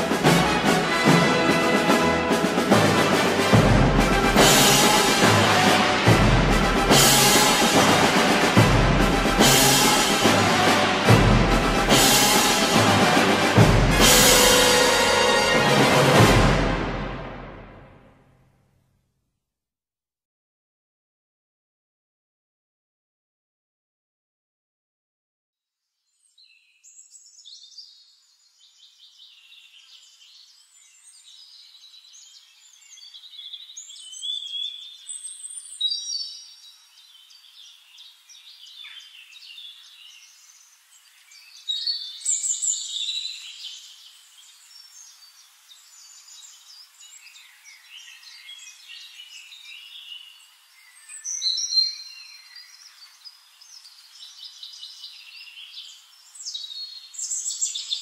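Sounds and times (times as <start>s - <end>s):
songbirds singing: 26.0s - 58.0s.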